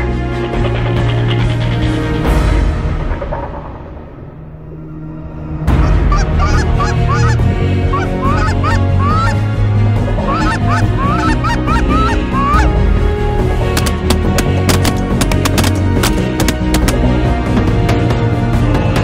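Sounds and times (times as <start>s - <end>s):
geese honking: 5.7s - 13.0s.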